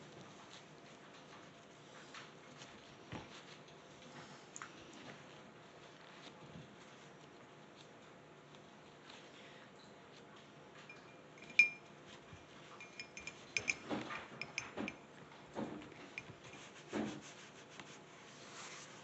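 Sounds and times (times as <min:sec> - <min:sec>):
paintbrush clinking in mug: 0:10.9 - 0:15.1, 0:15.9 - 0:16.8
brush rubbing strokes: 0:11.4 - 0:13.8, 0:15.9 - 0:19.0.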